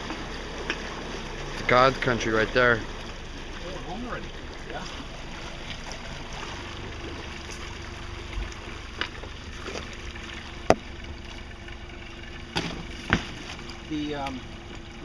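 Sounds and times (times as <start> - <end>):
motorboat rumbling: 0.0 - 15.0
small knocks: 10.7 - 10.9.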